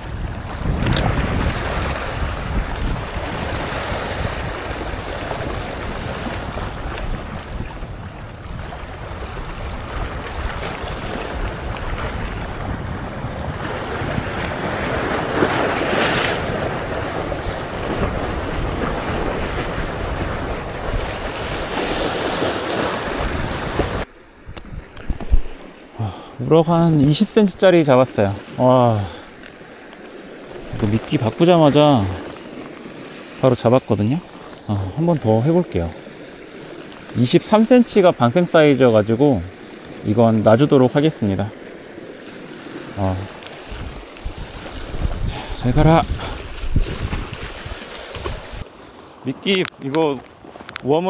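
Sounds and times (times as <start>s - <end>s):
waves washing against rocks: 0.0s - 24.1s, 26.5s - 51.0s
wind buffeting microphone: 0.0s - 25.6s, 43.6s - 49.2s.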